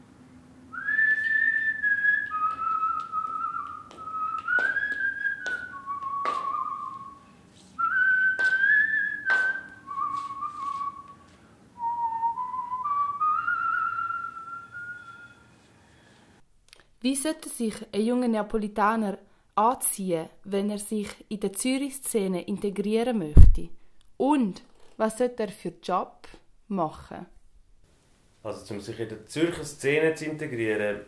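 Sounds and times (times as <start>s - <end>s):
person whistling a tune: 0.7s - 15.6s.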